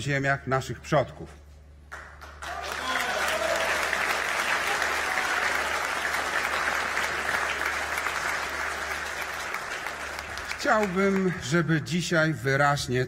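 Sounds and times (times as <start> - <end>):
audience applauding: 1.9 - 11.9.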